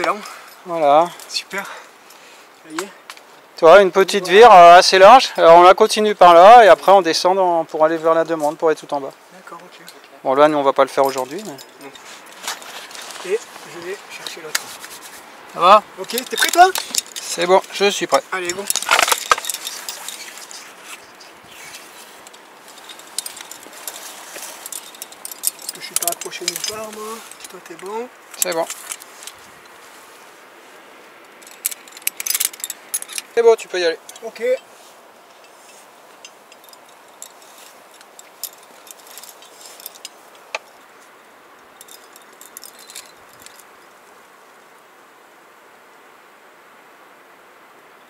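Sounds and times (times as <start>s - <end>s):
carabiners clinking: 9.8s - 29.8s, 31.2s - 43.9s
climbing gear rustling: 10.9s - 30.4s, 31.1s - 43.8s.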